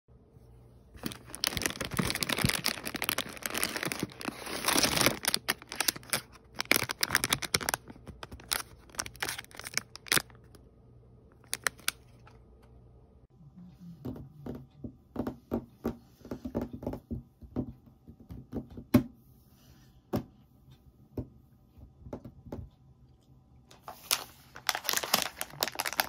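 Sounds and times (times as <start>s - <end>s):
foil packets crinkling: 1.0s - 10.6s, 11.4s - 12.4s, 23.9s - 26.0s.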